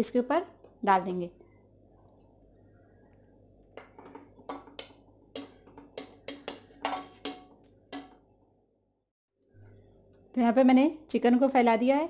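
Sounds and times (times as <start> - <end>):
utensil clinking on plate and pot: 3.8 - 8.2.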